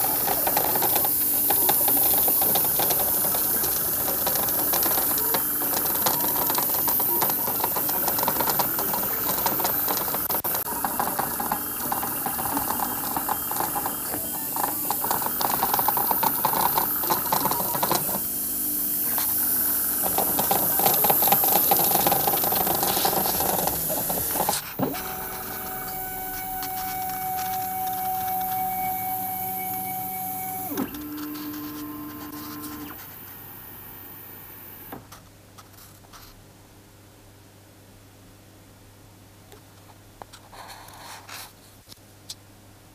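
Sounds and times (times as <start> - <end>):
airbrush hissing: 0.0 - 32.9
stepper motors buzzing and whirring: 0.0 - 33.1.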